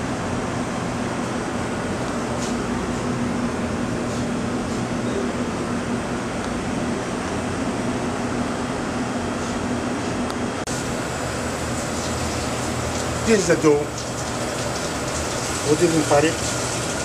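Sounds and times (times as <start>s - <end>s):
ventilation fans humming: 0.0s - 17.0s.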